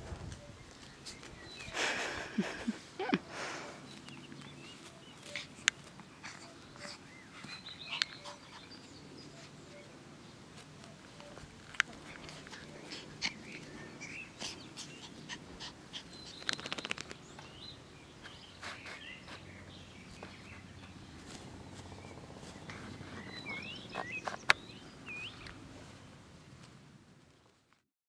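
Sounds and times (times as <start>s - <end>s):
small birds chirping: 0.3s - 26.3s.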